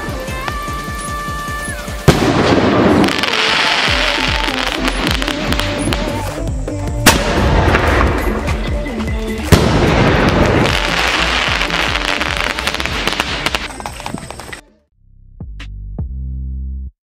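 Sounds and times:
hissing crackle: 0.0s - 6.5s, 9.3s - 14.6s
music: 0.0s - 17.0s
firework bang: 2.0s - 6.2s, 7.0s - 8.5s, 9.5s - 13.8s.

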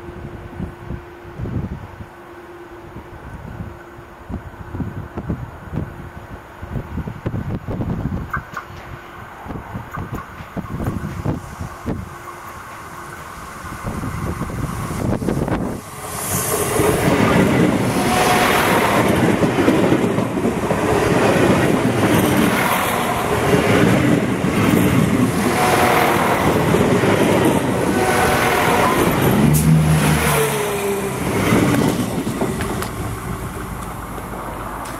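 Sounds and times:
train wheels rumbling on rails: 4.4s - 34.9s.

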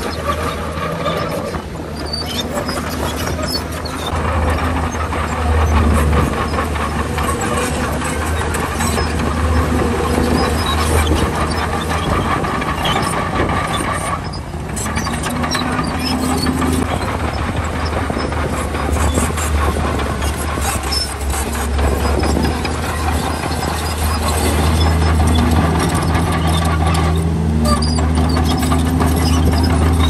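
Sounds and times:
bulldozer diesel engine: 0.0s - 30.0s
crawler tracks clanking: 0.0s - 30.0s.

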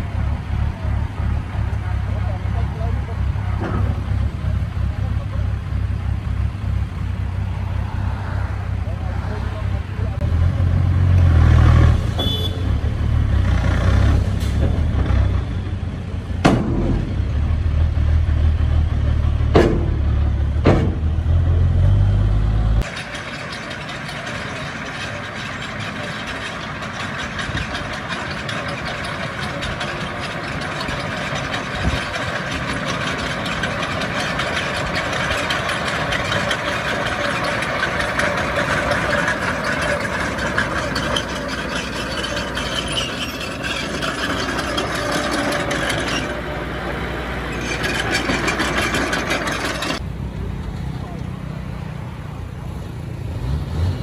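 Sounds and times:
diesel engine rumbling: 0.0s - 54.0s
sharp knocks: 16.4s - 17.2s, 19.5s - 21.1s.

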